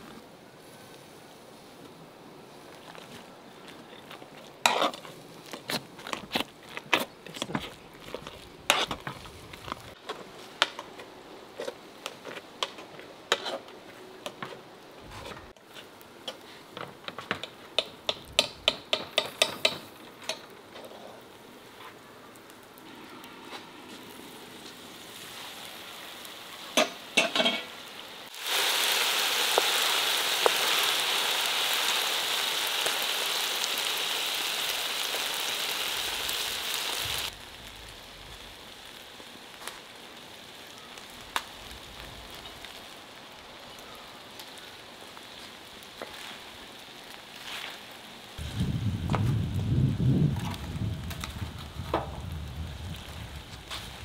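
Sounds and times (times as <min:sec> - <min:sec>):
meat sizzling in a wok: 0:24.0 - 0:54.0.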